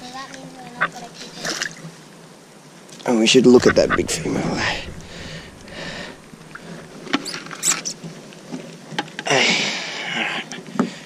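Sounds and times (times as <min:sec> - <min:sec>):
rush of noise: 0:03.3 - 0:08.0.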